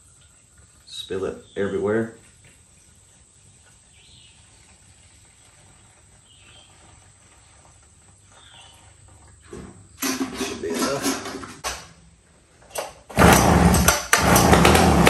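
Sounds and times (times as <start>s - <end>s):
faint insect hum: 0.0s - 10.0s
bird chirps: 8.3s - 9.0s.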